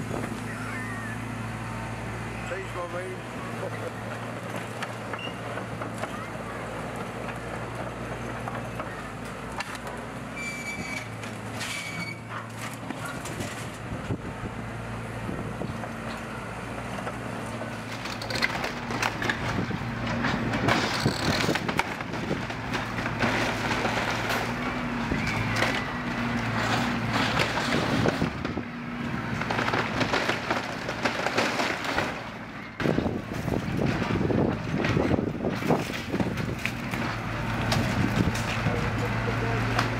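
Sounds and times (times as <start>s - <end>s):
excavator diesel engine running: 0.0s - 39.9s
timber cracking and crunching: 15.8s - 39.9s.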